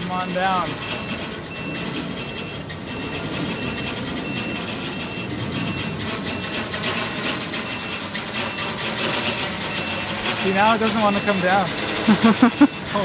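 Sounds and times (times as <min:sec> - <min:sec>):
drone motors and propellers: 0:00.0 - 0:13.0
short high electronic beep: 0:09.7 - 0:13.0.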